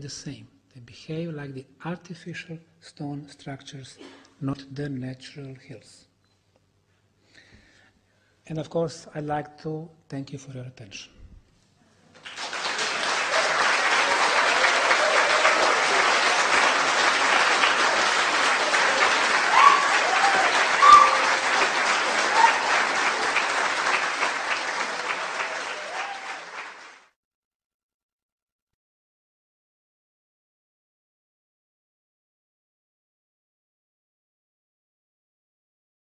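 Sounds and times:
audience applauding: 0:12.1 - 0:27.1
crowd crying out: 0:13.2 - 0:26.8.

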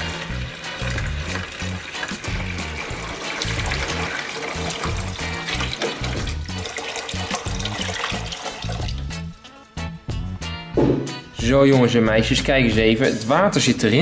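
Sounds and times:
water pouring into plastic tank: 0:00.0 - 0:09.2
background music: 0:00.0 - 0:14.0.

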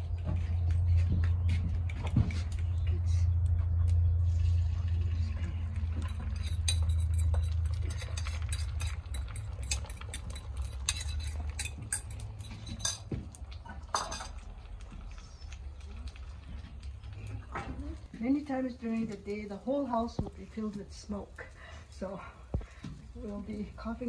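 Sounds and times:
low rumble: 0:00.0 - 0:10.0
metal utensil scraping skillet: 0:06.1 - 0:13.0.

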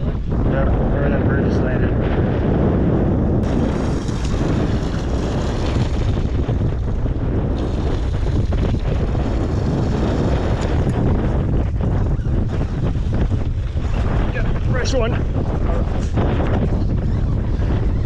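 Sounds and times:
wind buffeting microphone: 0:00.0 - 0:18.0
boat engine: 0:03.4 - 0:16.6
water: 0:03.4 - 0:18.0.

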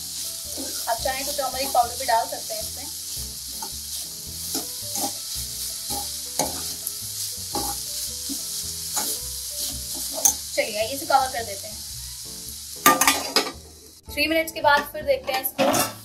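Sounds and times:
vegetables sizzling in a pan: 0:00.0 - 0:15.1
metal spatula scraping a pan: 0:00.5 - 0:02.0, 0:03.6 - 0:06.8, 0:07.5 - 0:10.5, 0:15.3 - 0:16.0.

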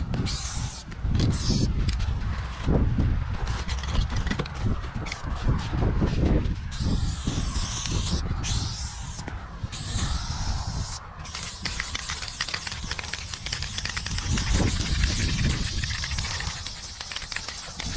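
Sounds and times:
spray paint can hissing: 0:00.0 - 0:01.7, 0:06.7 - 0:17.9
steady low rumble: 0:00.0 - 0:17.9.

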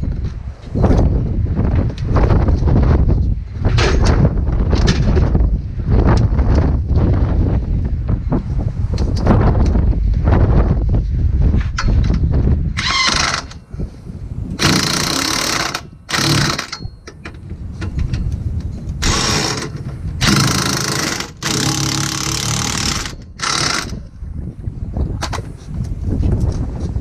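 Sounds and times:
impact wrench rattling: 0:11.8 - 0:13.6, 0:14.6 - 0:18.3, 0:19.0 - 0:24.0.

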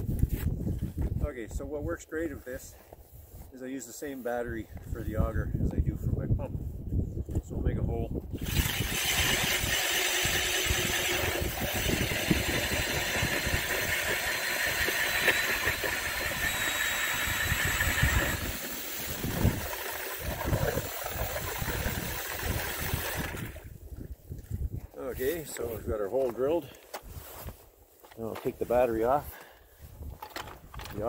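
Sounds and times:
cordless drill boring through ice: 0:08.3 - 0:23.7.

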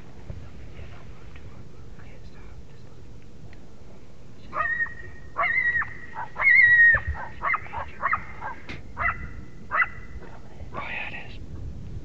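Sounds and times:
coyote howling: 0:04.5 - 0:11.0
coyote yipping: 0:04.5 - 0:11.0.

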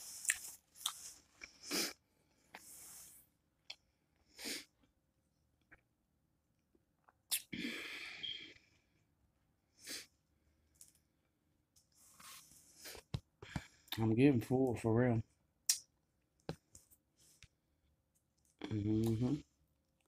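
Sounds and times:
person eating mouth noises: 0:07.3 - 0:08.4, 0:18.6 - 0:19.3.

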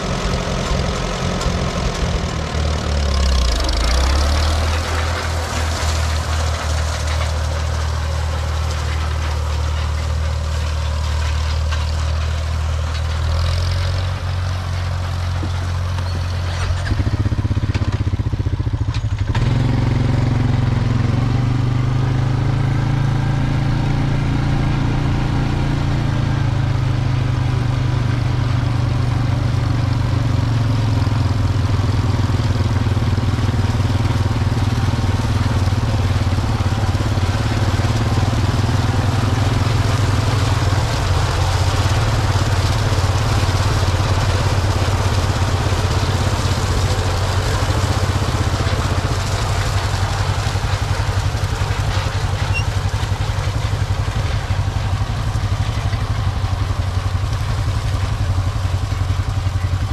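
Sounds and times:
engine idling and accelerating: 0:00.0 - 0:59.9.

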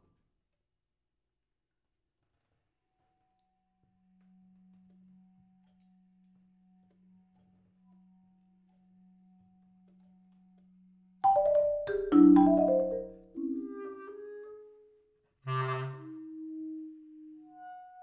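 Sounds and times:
marimba mallet run: 0:11.2 - 0:14.0.

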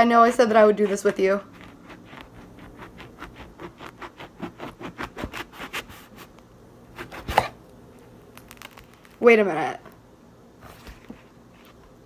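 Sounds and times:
knife sawing through grapefruit rind: 0:00.7 - 0:06.3, 0:07.0 - 0:07.6
rind crunching: 0:08.2 - 0:09.2.

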